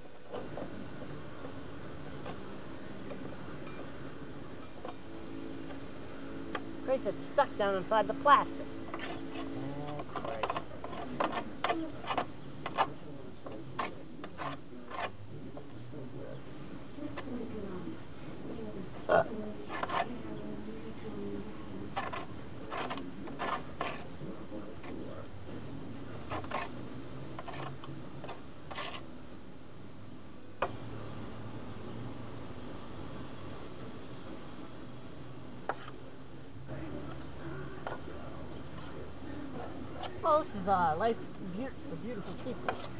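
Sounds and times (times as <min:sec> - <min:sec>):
scraper scraping grass off metal: 0:08.9 - 0:15.2, 0:19.6 - 0:20.4, 0:21.9 - 0:25.1, 0:26.2 - 0:29.1.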